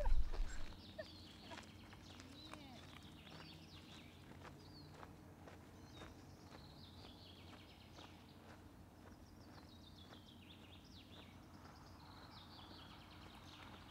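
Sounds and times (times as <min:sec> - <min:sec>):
low steady hum: 0:00.0 - 0:00.8
songbird singing: 0:00.0 - 0:13.9.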